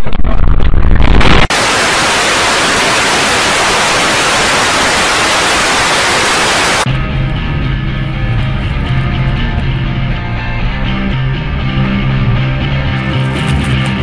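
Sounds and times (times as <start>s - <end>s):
low rumbling noise: 0.0s - 13.4s
tv static hiss: 1.0s - 6.9s.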